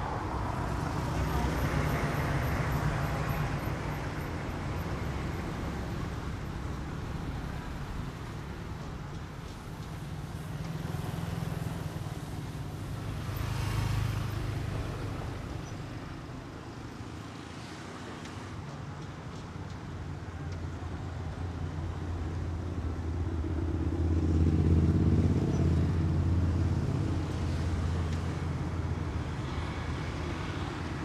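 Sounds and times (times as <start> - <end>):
street traffic noise: 0.0 - 31.0.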